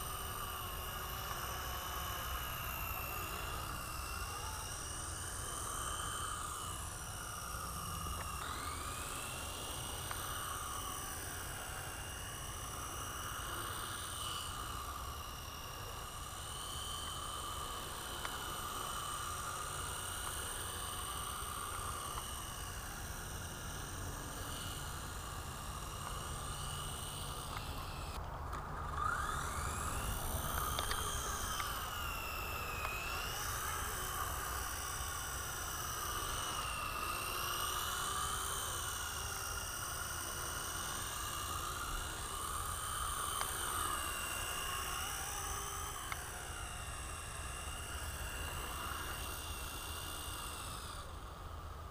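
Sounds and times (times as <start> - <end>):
rc helicopter motor whining: 0.0 - 51.9.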